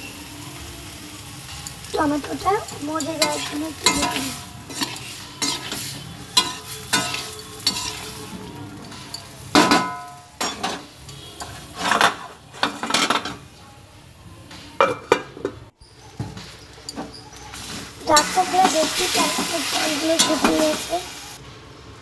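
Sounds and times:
tomatoes sizzling in oil: 0:00.0 - 0:13.6, 0:15.8 - 0:22.0
spatula scraping a pan: 0:02.6 - 0:09.8, 0:10.4 - 0:13.3.

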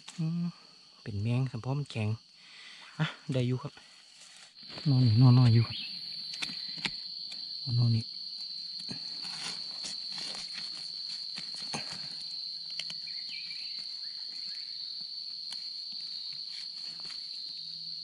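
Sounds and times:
insects droning: 0:00.0 - 0:18.0
crackles and clicks: 0:04.2 - 0:14.4, 0:15.3 - 0:17.3.

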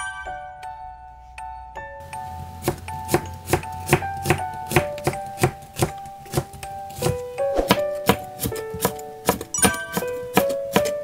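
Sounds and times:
light background music: 0:00.0 - 0:11.0
knife slicing on plastic board: 0:05.4 - 0:09.5.

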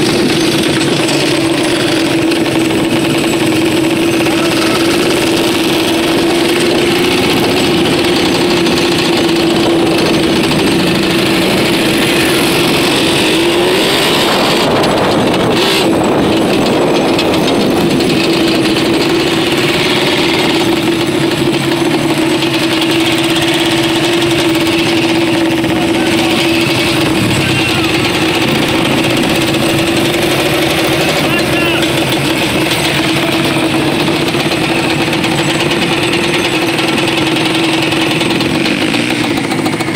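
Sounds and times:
atv engines droning: 0:00.0 - 0:39.9.

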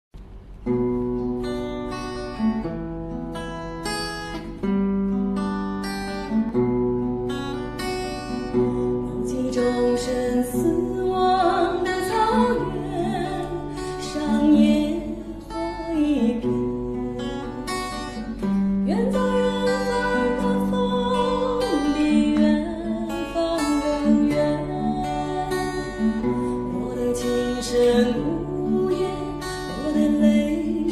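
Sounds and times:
acoustic guitar strumming: 0:00.2 - 0:30.9
woman singing: 0:08.5 - 0:30.9.

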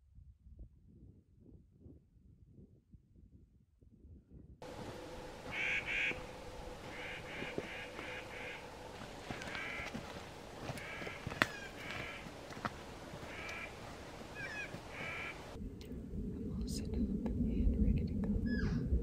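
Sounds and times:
bird calling harsh nasal notes: 0:04.7 - 0:15.6.

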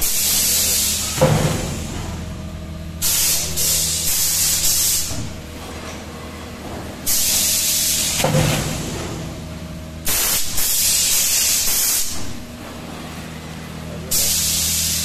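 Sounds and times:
machine humming: 0:00.0 - 0:15.0
compressed-air hiss: 0:03.0 - 0:05.2, 0:07.1 - 0:08.3, 0:10.0 - 0:12.3, 0:14.1 - 0:15.0.

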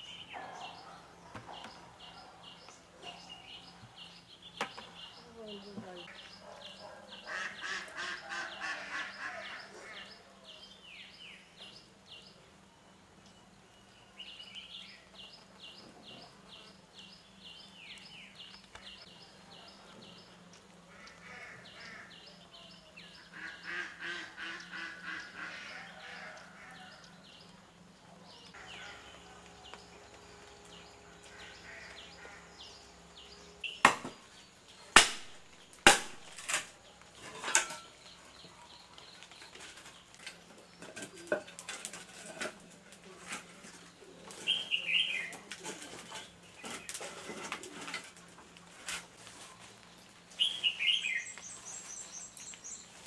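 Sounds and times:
bird calls: 0:00.0 - 0:12.3, 0:13.2 - 0:42.4, 0:43.2 - 0:48.2, 0:49.3 - 0:53.0
sharp knocks: 0:33.8 - 0:34.2.

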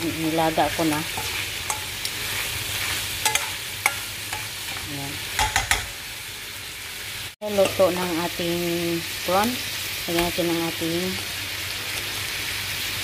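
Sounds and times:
seafood sizzling in wok: 0:00.0 - 0:13.0
metal spoon clicking on pan: 0:01.1 - 0:02.1, 0:03.2 - 0:04.5, 0:05.4 - 0:05.9.

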